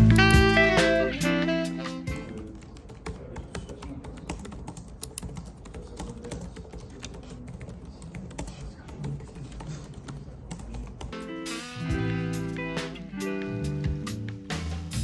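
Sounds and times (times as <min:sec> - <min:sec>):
laptop keyboard typing: 0:02.1 - 0:11.2.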